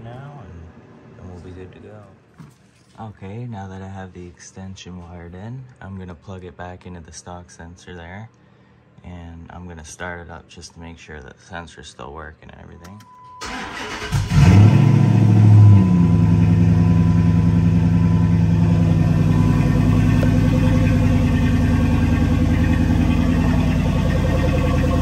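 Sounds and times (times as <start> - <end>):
car engine starting and idling: 13.3 - 25.0.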